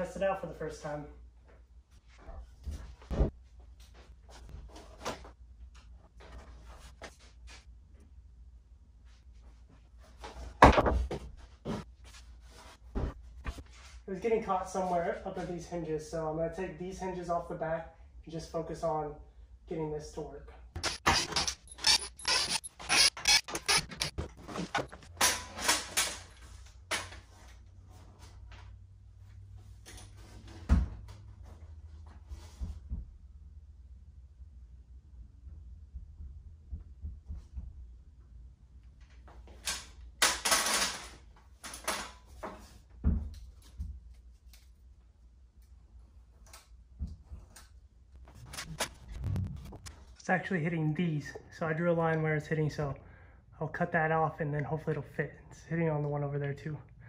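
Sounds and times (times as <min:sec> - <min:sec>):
wooden frame creaking and knocking: 0:20.8 - 0:26.3.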